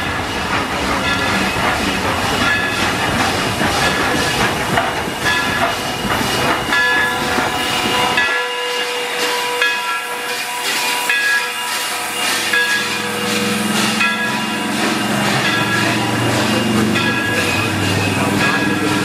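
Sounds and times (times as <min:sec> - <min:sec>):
locomotive running gear rumble: 0:00.0 - 0:08.3, 0:12.3 - 0:19.0
steam hissing in puffs: 0:08.7 - 0:16.8.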